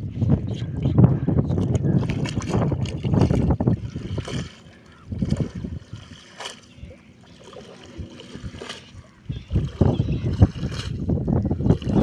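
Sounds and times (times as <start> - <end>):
water splashing off a wet net: 2.1 - 4.6, 5.2 - 6.7, 7.4 - 9.0, 9.7 - 11.0.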